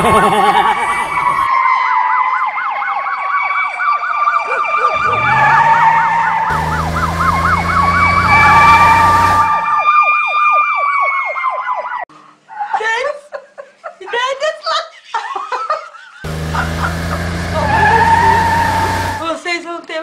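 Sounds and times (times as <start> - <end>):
emergency siren warbling: 0.6 - 12.1, 16.3 - 19.3.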